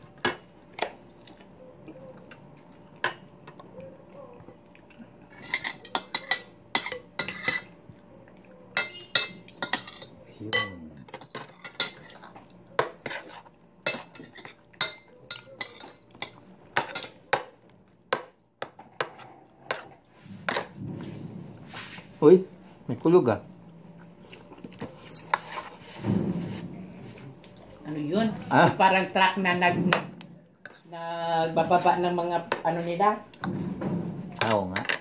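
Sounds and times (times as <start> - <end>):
cutlery clinking on plates: 8.8 - 12.2.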